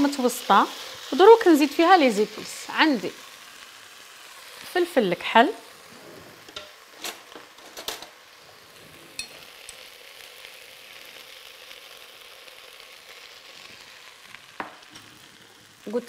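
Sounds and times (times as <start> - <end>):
vegetables sizzling in oil: 0.0 - 16.0
kitchen utensils clicking: 6.5 - 8.2, 9.2 - 9.4.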